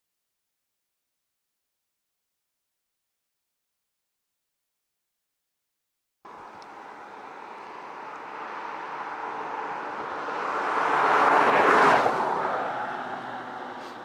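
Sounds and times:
vehicle passing by: 6.3 - 14.0.

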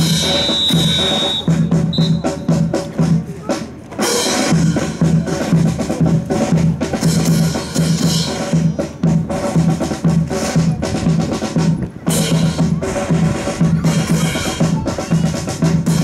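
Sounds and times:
snare drum strokes and rolls: 0.0 - 16.0
bass drum beat: 4.0 - 16.0.

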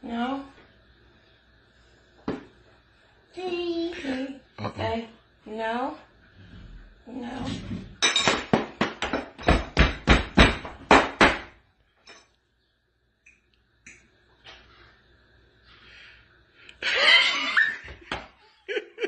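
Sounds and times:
sharp knocks on kitchen surface: 2.3 - 2.5, 8.2 - 11.6.

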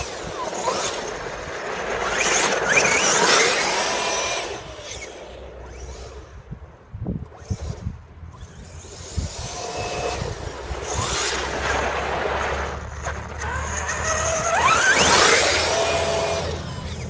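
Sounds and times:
toy car motor whining: 0.0 - 6.5, 7.2 - 17.0.

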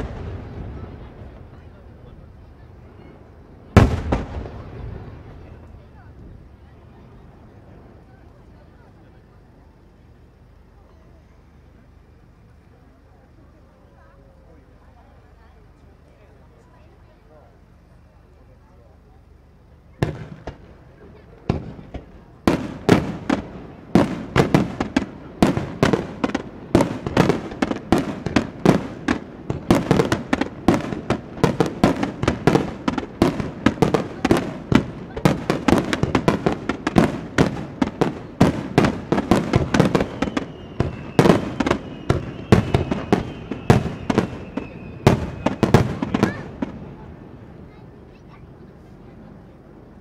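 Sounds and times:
faint high whistle: 39.9 - 45.7.

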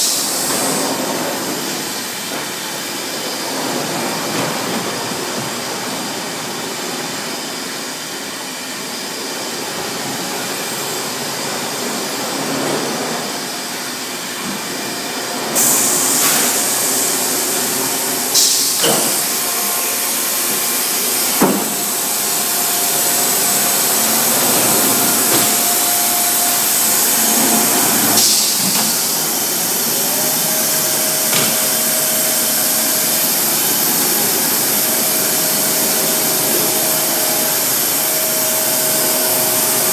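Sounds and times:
laundry machinery din: 9.7 - 39.9
loud hiss: 15.6 - 39.9.

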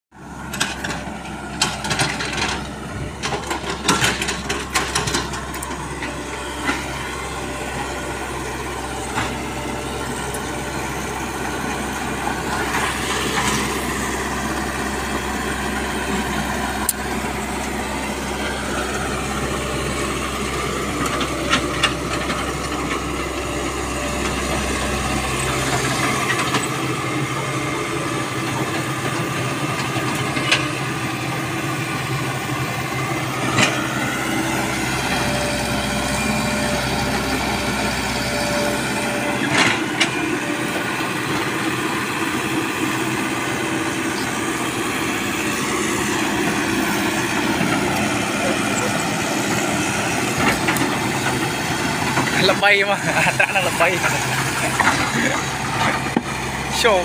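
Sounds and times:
diesel engine running: 0.1 - 57.0.

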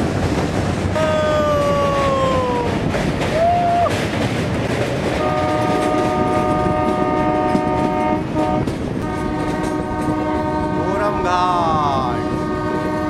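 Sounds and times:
train wheels on track: 0.0 - 13.0
wind rush: 0.0 - 13.0
locomotive horn blast: 5.2 - 13.0.

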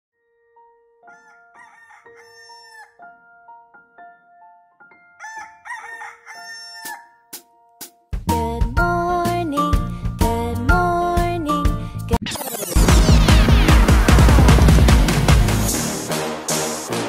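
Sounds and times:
rooster crowing: 1.1 - 3.0, 5.2 - 7.2.

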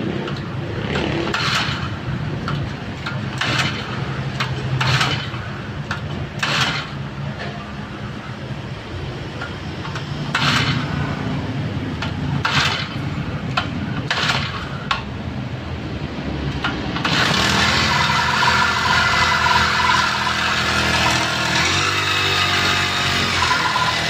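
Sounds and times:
small engine running and revving: 0.0 - 2.0, 4.8 - 5.4, 6.4 - 7.0, 10.2 - 11.2, 12.4 - 13.0, 17.0 - 24.0.

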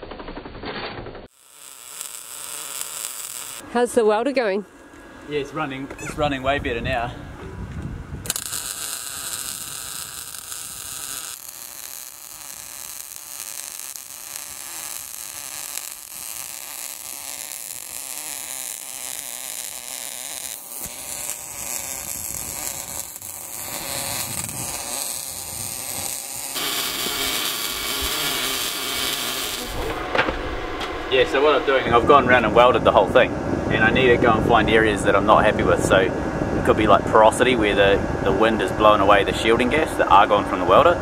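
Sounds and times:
welding arc hiss: 1.3 - 3.8, 8.2 - 30.0.

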